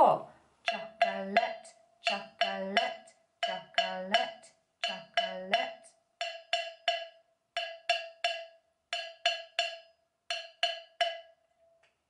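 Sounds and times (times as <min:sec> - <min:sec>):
cowbell struck with a stick: 0:02.1 - 0:11.4.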